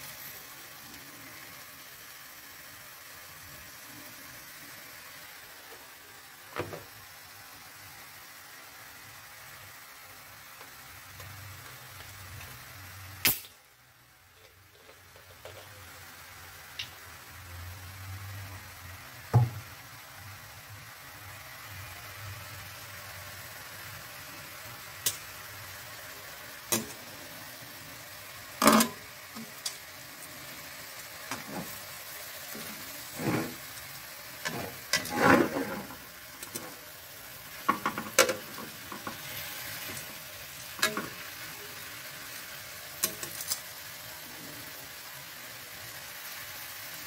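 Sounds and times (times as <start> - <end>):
chicken sizzling in frying pan: 0.0 - 47.0
metal tongs scraping pan: 32.5 - 33.7, 34.4 - 36.8, 43.0 - 43.6.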